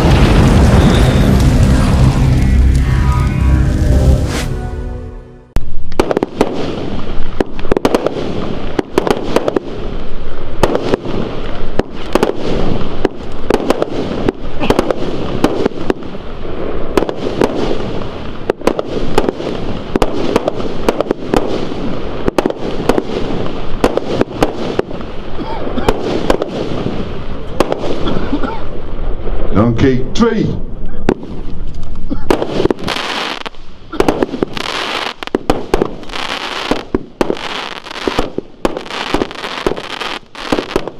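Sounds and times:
fireworks bangs and pops: 0.0 - 2.9, 5.7 - 29.5, 31.0 - 40.9
continuous rumble: 0.0 - 4.9.

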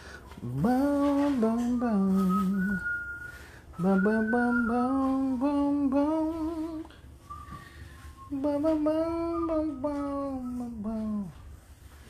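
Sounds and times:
person singing slow wordless vocals: 0.3 - 3.0, 3.8 - 7.1, 8.2 - 11.4.

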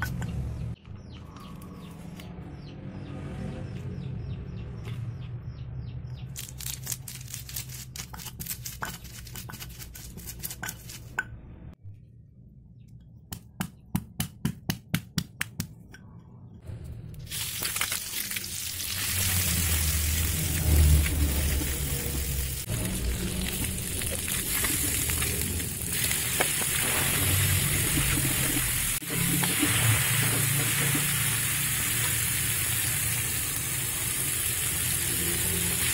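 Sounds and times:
stone pestle pounding in mortar: 13.3 - 15.8
paste sizzling in wok: 17.3 - 35.9.

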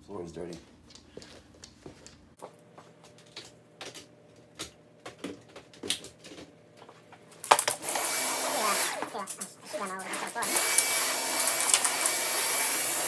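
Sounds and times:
dog claws clicking on laminate floor: 0.4 - 2.3.

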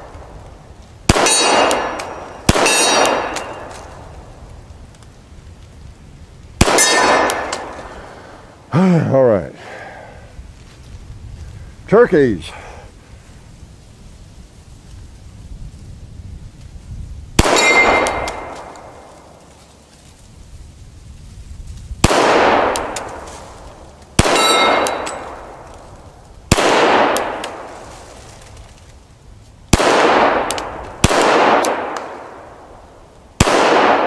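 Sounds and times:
pistol shots echoing: 1.1 - 3.8, 6.6 - 7.8, 17.4 - 19.1, 22.0 - 23.2, 24.2 - 25.6, 26.5 - 27.7, 29.7 - 32.5, 33.4 - 34.0
steel target clang: 1.1 - 3.8, 6.6 - 7.7, 17.4 - 18.6, 24.2 - 25.4.

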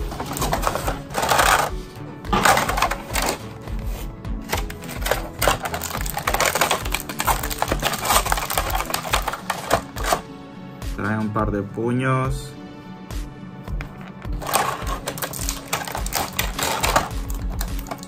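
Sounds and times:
plastic packaging crinkling: 0.0 - 3.6, 4.4 - 10.2, 14.4 - 18.0
background music with beat: 0.0 - 18.0.

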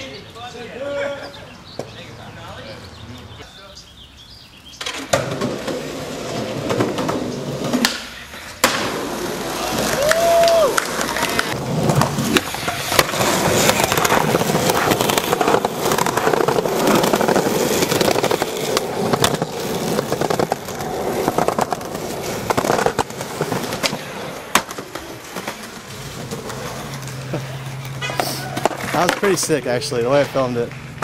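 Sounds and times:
skateboard wheels rolling on asphalt: 0.6 - 31.0
skateboard wooden clacks: 4.8 - 9.0, 9.9 - 27.2, 27.8 - 29.5.

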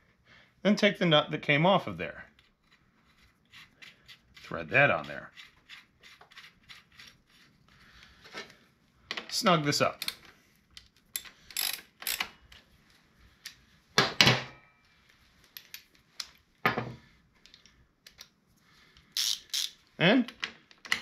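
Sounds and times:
wrench clicking and clanking: 11.2 - 12.3, 19.2 - 19.8.

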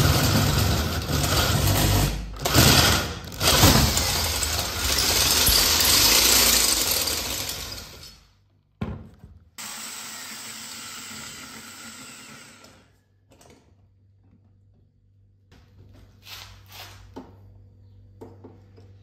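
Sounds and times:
electric drill running: 2.4 - 8.1, 9.6 - 12.8.

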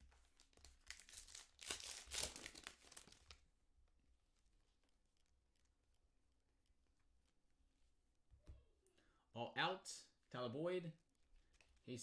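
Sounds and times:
foil wrapper tearing and crinkling: 0.6 - 3.4.

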